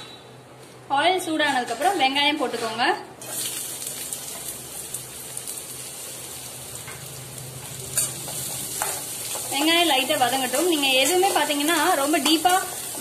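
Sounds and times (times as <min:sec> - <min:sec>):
onions sizzling in hot oil: 0:03.2 - 0:13.0.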